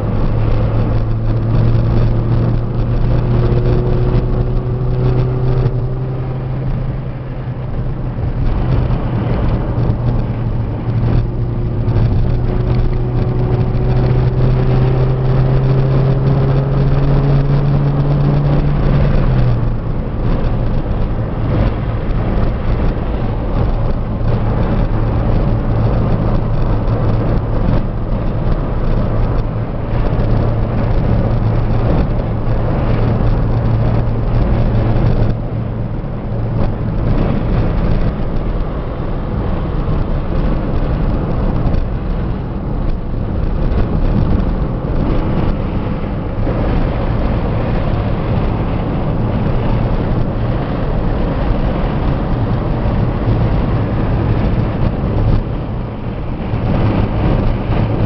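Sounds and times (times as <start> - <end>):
car engine pulling uphill: 0.0 - 58.0
road noise: 0.0 - 58.0.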